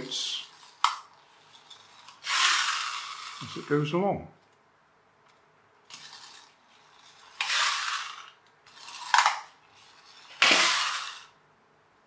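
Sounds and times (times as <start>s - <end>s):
toy spring motor whirring: 0.0s - 3.9s, 5.9s - 11.4s.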